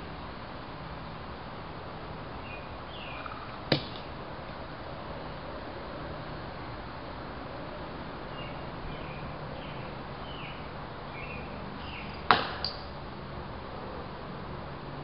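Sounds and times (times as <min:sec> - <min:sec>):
bird chirps: 0:02.4 - 0:03.6, 0:08.3 - 0:13.0
ball striking target: 0:12.2 - 0:13.0.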